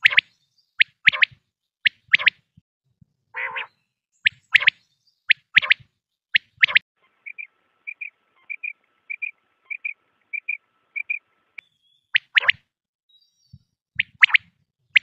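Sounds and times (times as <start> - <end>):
quail calling: 0.0 - 2.4, 3.4 - 3.7, 4.3 - 5.8, 6.4 - 11.2.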